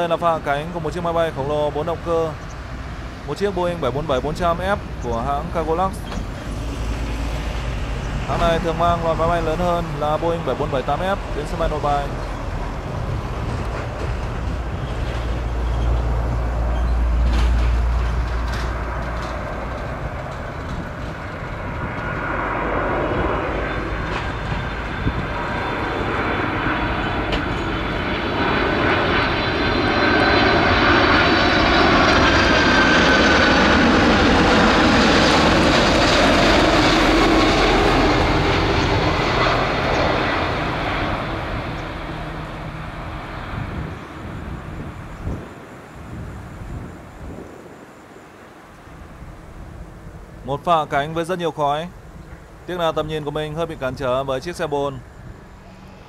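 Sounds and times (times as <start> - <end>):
high whining fan tones: 0.0 - 56.0
jet engines roaring: 0.0 - 56.0.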